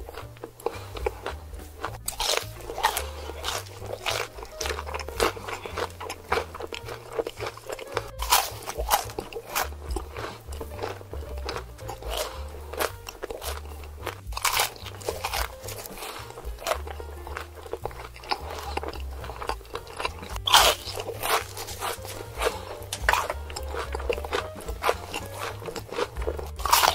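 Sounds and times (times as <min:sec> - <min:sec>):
background music with bass line: 0:00.0 - 0:26.9
crunchy biting and chewing: 0:00.0 - 0:26.9.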